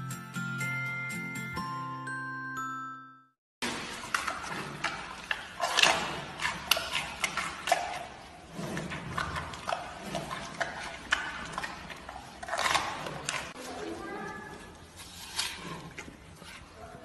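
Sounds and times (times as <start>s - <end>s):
panda chewing and crunching: 3.7s - 17.0s.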